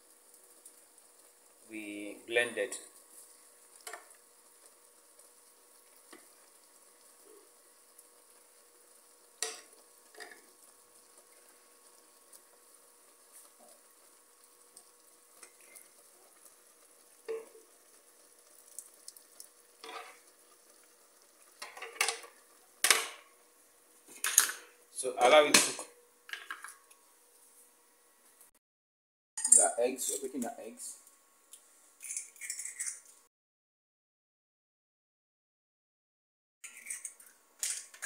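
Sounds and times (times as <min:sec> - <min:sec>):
faint steady hiss of pot: 0:00.0 - 0:28.5, 0:29.4 - 0:32.9
spoon knocking and scraping pot: 0:17.2 - 0:17.7.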